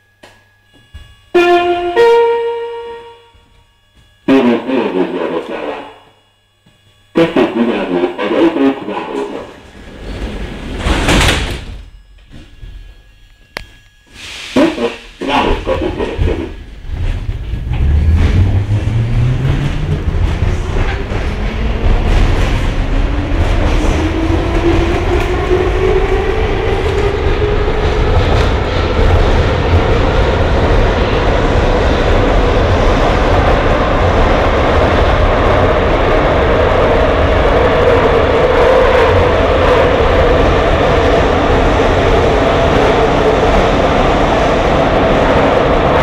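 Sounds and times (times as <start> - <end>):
metro car running through tunnel: 0.0 - 6.4, 7.0 - 46.0
traction motor whine: 0.0 - 14.2, 15.8 - 29.2
droning running gear: 0.2 - 8.5, 15.1 - 32.8
wheels rumbling on rail: 8.9 - 46.0.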